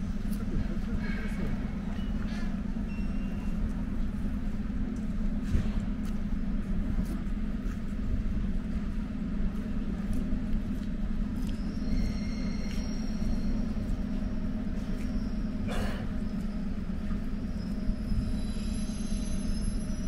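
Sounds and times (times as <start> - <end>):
electric train humming: 0.0 - 20.0
faint high whine: 11.2 - 20.0.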